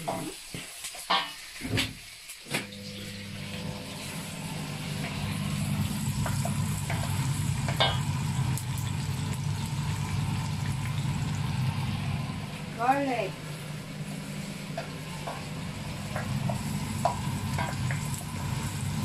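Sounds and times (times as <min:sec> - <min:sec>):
onion sizzling in a pan: 0:00.0 - 0:19.0
low hum: 0:02.8 - 0:12.8
wooden spoon knocking pan: 0:14.8 - 0:18.1.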